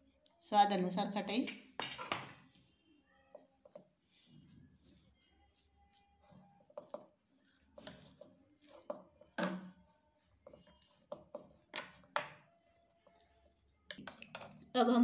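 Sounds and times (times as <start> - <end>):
metal spoon scraping a metal pan: 1.8 - 2.4.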